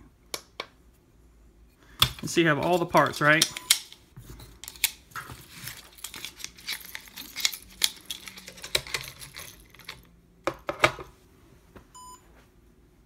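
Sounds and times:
plastic parts clicking and clattering: 2.0s - 11.1s.

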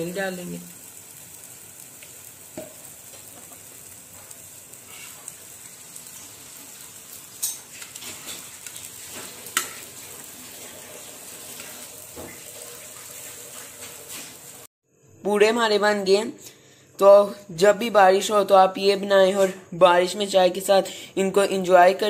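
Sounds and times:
oil sizzling: 0.0s - 14.7s
metal spatula scraping a pan: 4.2s - 5.3s, 7.3s - 12.4s.

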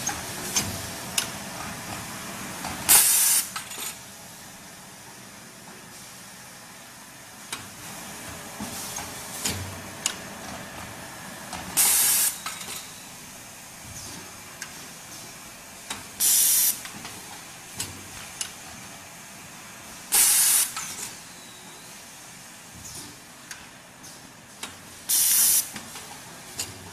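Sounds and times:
compressed air hiss: 2.9s - 3.6s, 11.8s - 12.4s, 16.2s - 16.8s, 20.1s - 21.0s, 25.1s - 25.7s.

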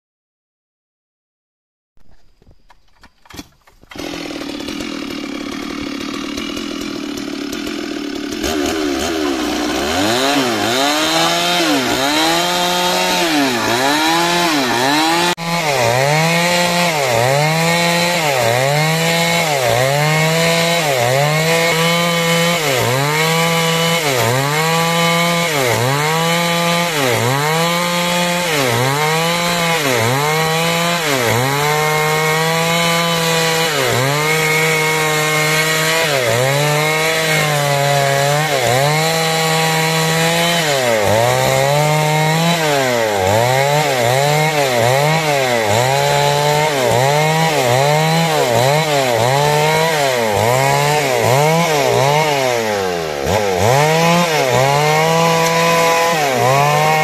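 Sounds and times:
chainsaw cutting timber: 2.0s - 57.0s.

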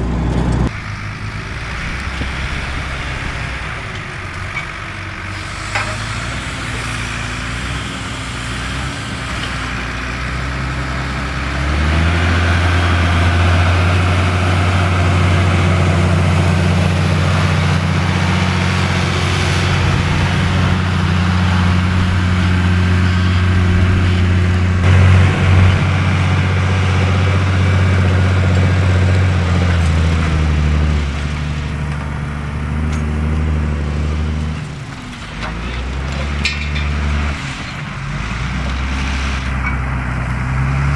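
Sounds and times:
tractor diesel engine under load: 0.0s - 40.9s.

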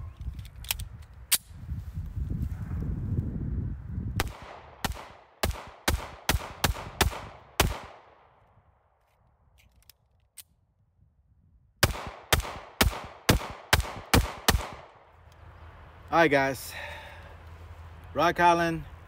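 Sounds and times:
pistol shots: 4.2s - 8.3s, 11.8s - 15.0s.

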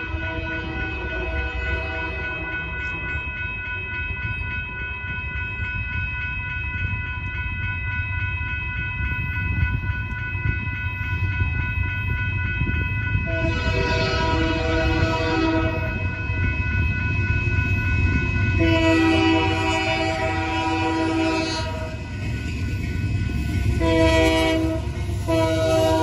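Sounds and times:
crossing bell ringing: 0.0s - 26.0s
freight train rumble: 0.0s - 26.0s
locomotive horn: 13.3s - 16.0s, 18.6s - 22.0s, 23.8s - 26.0s.

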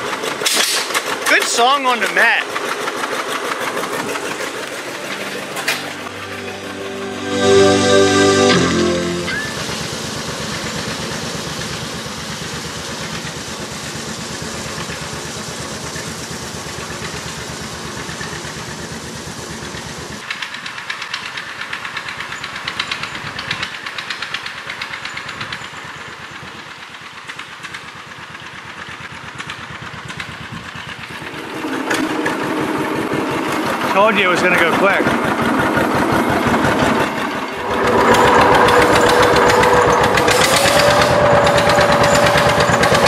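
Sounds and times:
small tractor engine rattling: 0.0s - 6.0s, 9.7s - 43.0s
engine running fast: 0.0s - 20.2s, 28.9s - 43.0s.

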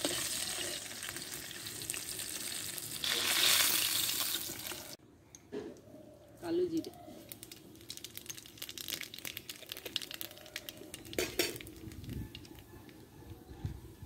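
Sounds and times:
seeds crackling in hot oil: 0.0s - 5.0s, 7.2s - 13.0s.

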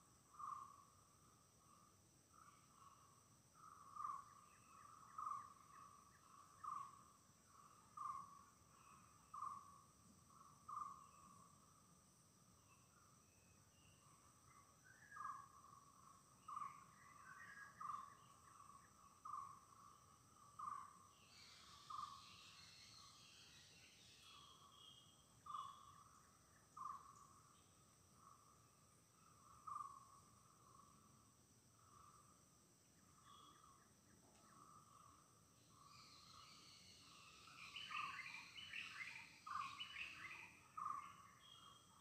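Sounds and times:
faint bird chirps: 0.0s - 42.0s
high insect drones: 34.6s - 40.6s.

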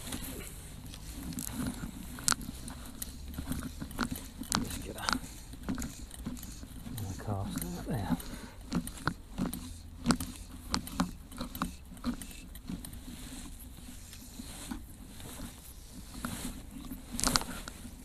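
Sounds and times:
fly line clicking and rustling: 0.0s - 18.0s
hand and sleeve handling noise: 0.0s - 18.0s.

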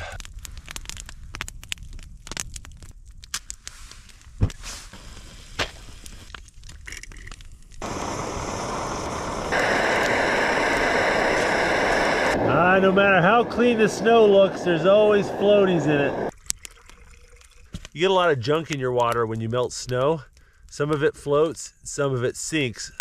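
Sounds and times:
sharp crackles and snaps: 0.0s - 12.4s, 16.3s - 23.0s
camp stove burner hissing: 3.6s - 6.4s, 7.8s - 16.3s.

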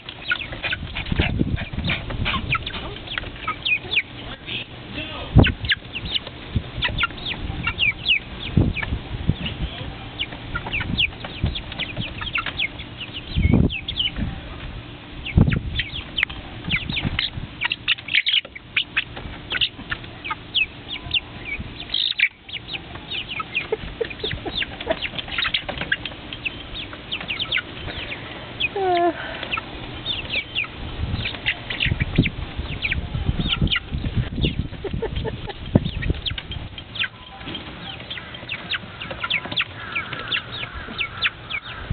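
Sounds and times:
chickens clucking and squawking: 0.0s - 41.9s.

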